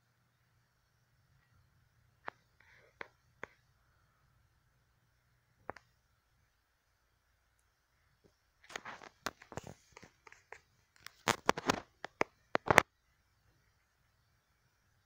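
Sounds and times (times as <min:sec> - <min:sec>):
rustling and sharp clicks: 0:05.6 - 0:06.0, 0:07.5 - 0:12.9.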